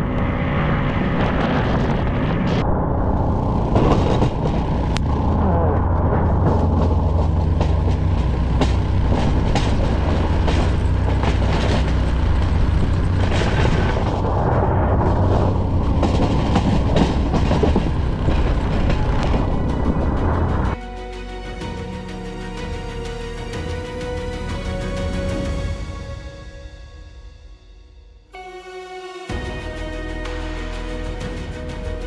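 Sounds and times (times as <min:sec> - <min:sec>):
truck engine rumbling: 0:00.0 - 0:26.1
knocks and rattles: 0:03.7 - 0:05.2, 0:06.2 - 0:14.3, 0:15.1 - 0:20.8.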